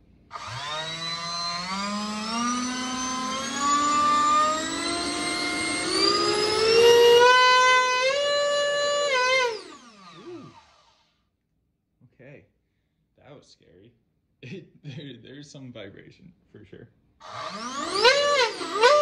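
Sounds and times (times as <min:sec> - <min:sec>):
turbo compressor whine: 0:00.0 - 0:11.0.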